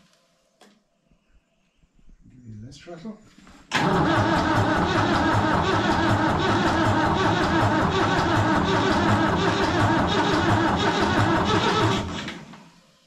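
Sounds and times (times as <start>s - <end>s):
diesel engine cranking on starter: 3.7s - 12.8s.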